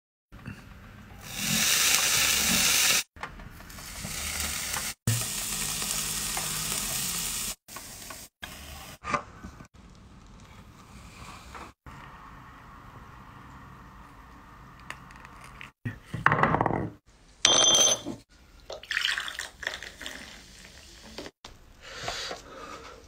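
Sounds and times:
sizzling on hot grill: 1.2 - 3.1, 3.7 - 9.0.

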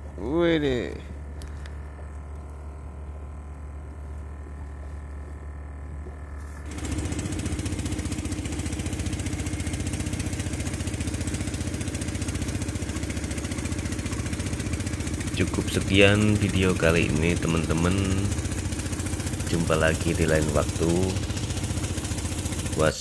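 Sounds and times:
boat engine running: 0.0 - 23.0
steady low hum: 0.0 - 23.0.

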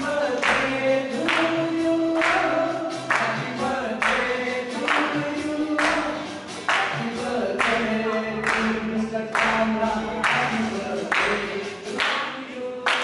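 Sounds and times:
person singing: 0.0 - 13.0
group clapping in time: 0.1 - 13.0.

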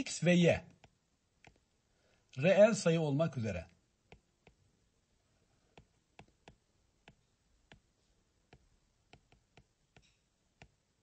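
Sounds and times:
stylus tapping on tablet: 0.7 - 1.7, 4.0 - 4.7, 5.7 - 7.9, 8.5 - 10.8.

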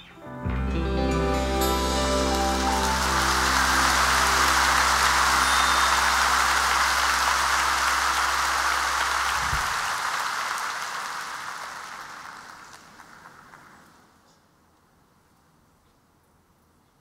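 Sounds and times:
band holding low chord: 0.3 - 9.4
audience applauding: 1.7 - 14.2.

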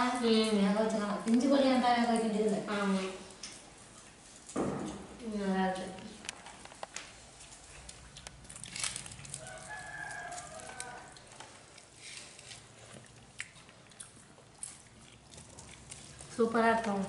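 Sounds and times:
rooster crowing: 9.3 - 11.3.

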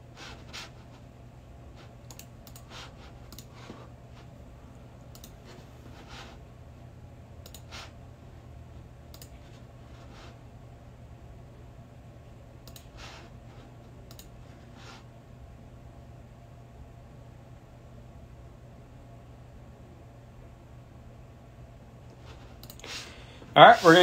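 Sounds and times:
low steady hum: 0.0 - 24.0
light clicks: 5.1 - 5.4, 14.1 - 14.3.

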